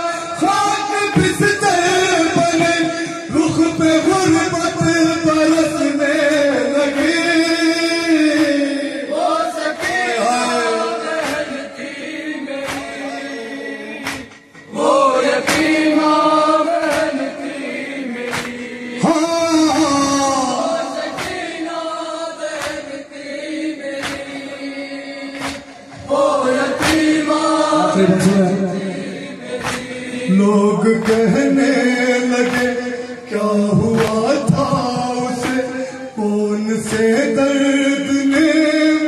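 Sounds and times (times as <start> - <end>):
men chanting in unison: 0.0 - 39.0
hand slaps on chest: 14.0 - 14.4, 18.3 - 18.6, 22.6 - 22.9, 24.0 - 24.3, 25.4 - 25.7, 29.6 - 29.9.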